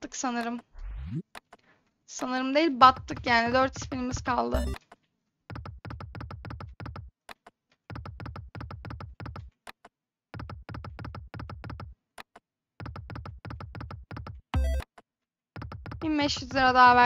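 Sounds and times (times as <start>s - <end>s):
rapid electronic ticking: 13.5s - 14.9s.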